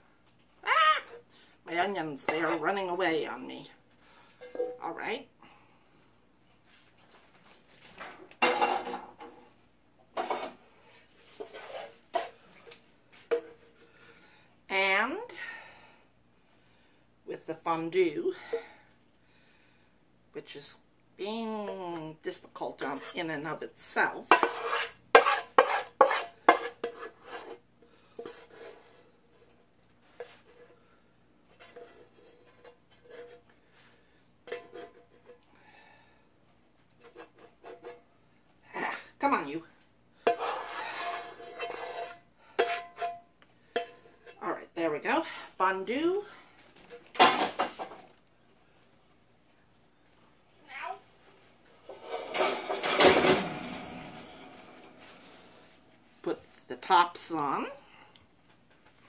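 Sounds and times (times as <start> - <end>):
pots and utensils clattering: 8.4 - 9.3, 34.5 - 35.4, 51.9 - 54.9
utensil scraping frying pan: 10.2 - 10.6, 11.2 - 12.4, 22.7 - 27.6, 40.3 - 44.4, 51.8 - 55.8.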